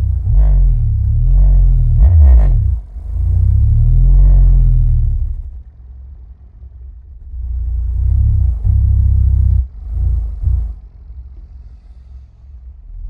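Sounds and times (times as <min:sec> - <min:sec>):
subwoofer bass tones gliding: 0:00.0 - 0:05.7, 0:07.0 - 0:11.3.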